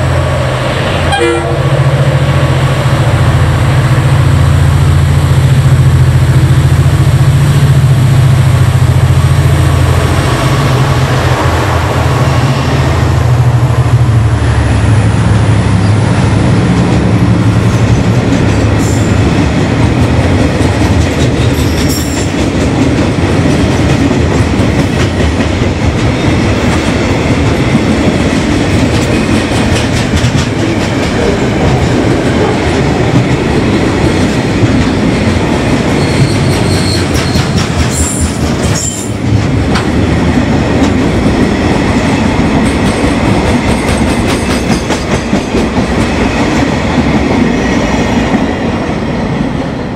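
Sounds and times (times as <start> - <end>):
diesel locomotive engines: 0.0 - 49.9
freight train wheels rumbling: 0.0 - 49.9
high squeaks: 36.0 - 38.2.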